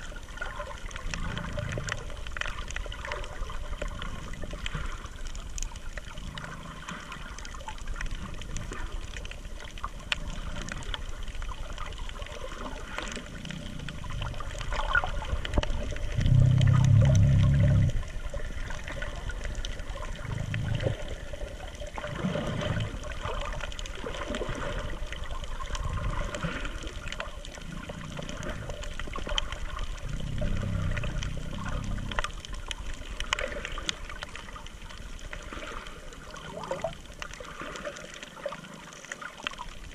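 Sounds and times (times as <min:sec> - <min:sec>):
muffled water sloshing underwater: 0:00.0 - 0:39.9
low muffled bursts: 0:16.0 - 0:18.2.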